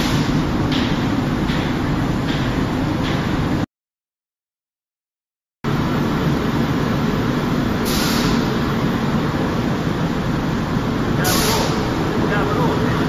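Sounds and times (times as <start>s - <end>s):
short hiss: 7.9s - 8.4s.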